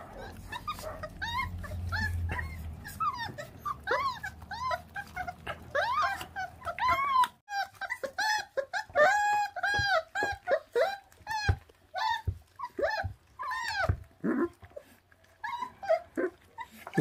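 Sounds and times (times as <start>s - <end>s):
puppies whimpering and whining: 0.0s - 17.0s.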